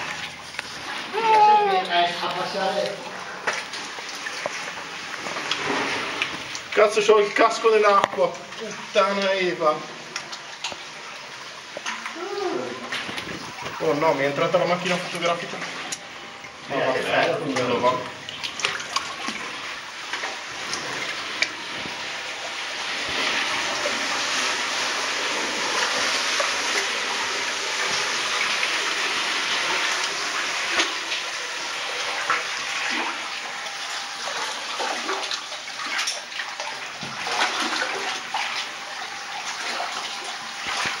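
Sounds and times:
water sloshing and splashing: 0.0 - 41.0.

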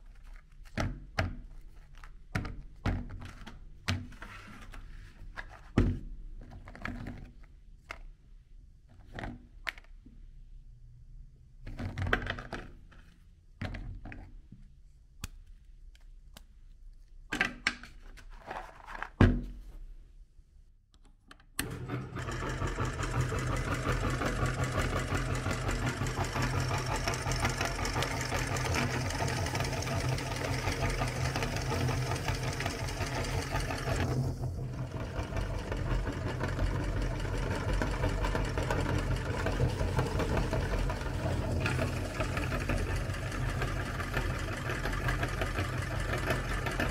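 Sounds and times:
meat grinder motor grinding: 21.6 - 46.9.

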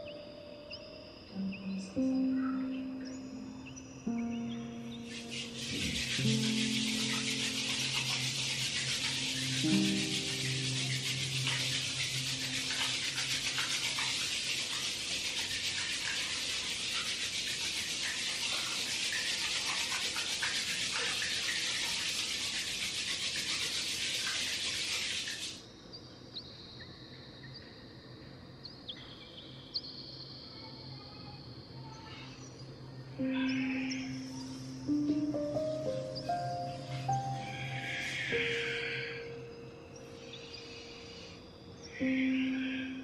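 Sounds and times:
hands rubbing together: 5.1 - 25.5.

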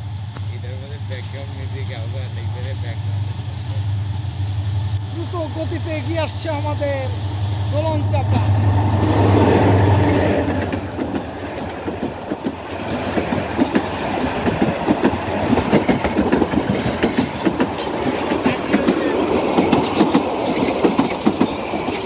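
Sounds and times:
train wheels clacking over rail joints: 9.3 - 22.0.

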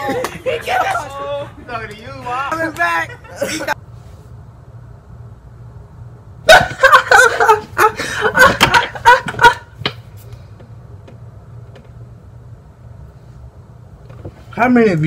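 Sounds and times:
man laughing hard: 3.0 - 3.8, 6.5 - 9.8.

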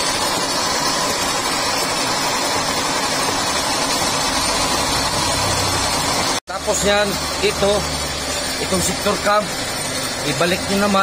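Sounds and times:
milling machine running: 0.0 - 11.0.

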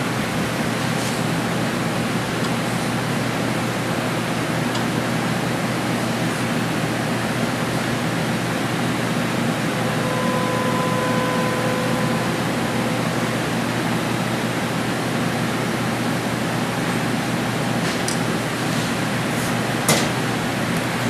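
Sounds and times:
faint steady tone: 9.8 - 14.6.

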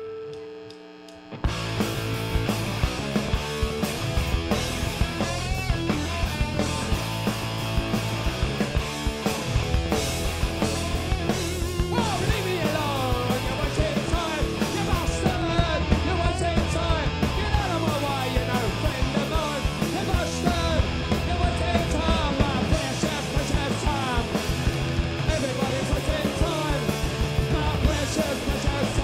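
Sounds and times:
punk rock band playing: 1.2 - 29.0
shouted lead vocal: 11.2 - 29.0.

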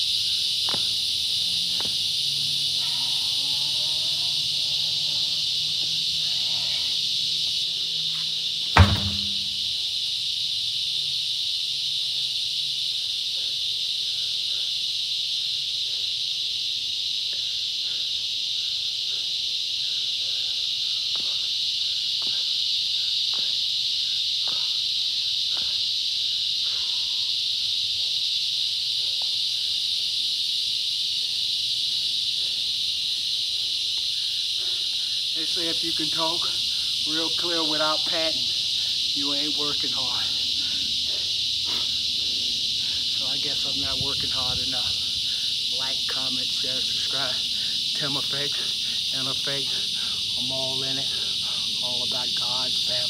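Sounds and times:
high insect chorus: 0.0 - 53.0
truck tire slamming onto ground: 8.7 - 9.7.

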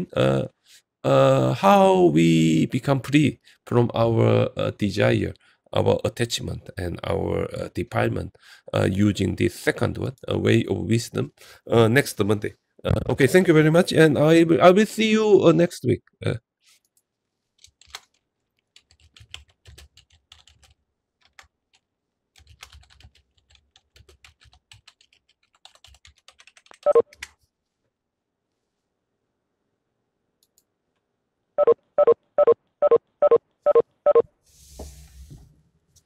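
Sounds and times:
keyboard typing: 17.6 - 21.8, 22.4 - 27.4.

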